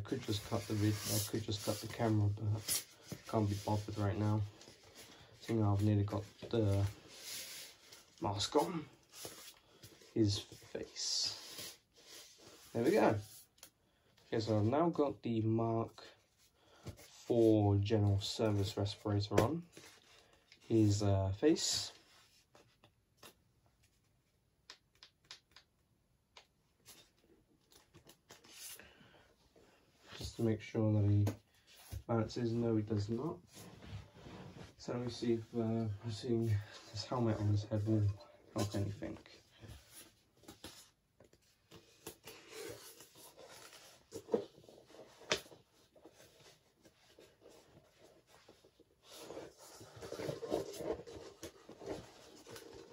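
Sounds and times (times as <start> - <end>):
faint rustling and handling: 0.0 - 52.9
faint clicks and taps of objects: 24.6 - 26.7.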